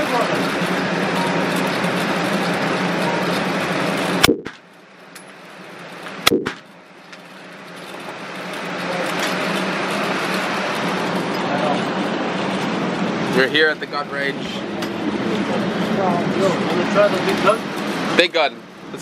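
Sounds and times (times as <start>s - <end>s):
handgun shots: 4.2s - 4.6s, 6.3s - 6.6s.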